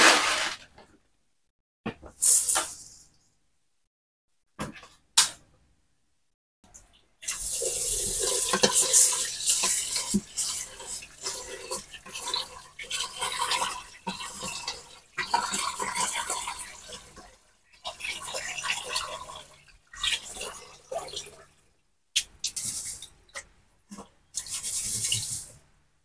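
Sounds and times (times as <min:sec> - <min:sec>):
hands swishing rice in water: 0:00.0 - 0:00.6
tap water running into pot: 0:07.2 - 0:21.5.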